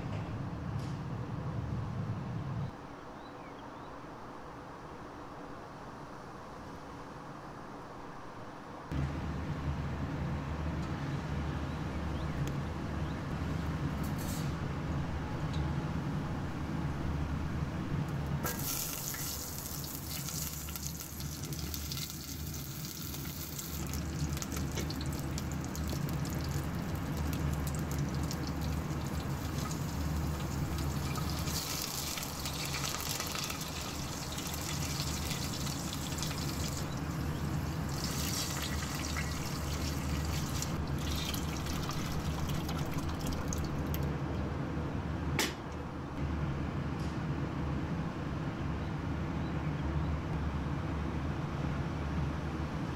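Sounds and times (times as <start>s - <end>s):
steady low hum: 0.0s - 52.9s
seeds sizzling in hot oil: 18.4s - 43.3s.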